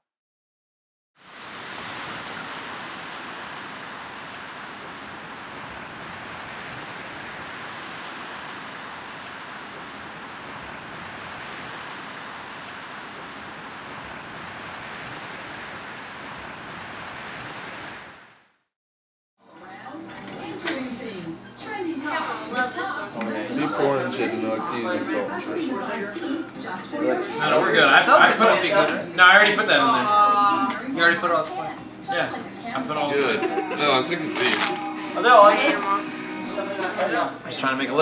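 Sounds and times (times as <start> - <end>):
steady rushing noise: 1.2 - 18.7, 32.1 - 38.0.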